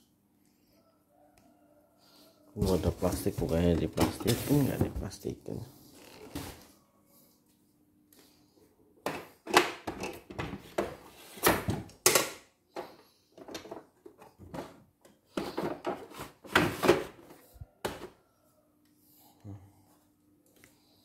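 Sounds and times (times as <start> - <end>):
cardboard and packing rustling: 2.6 - 5.2.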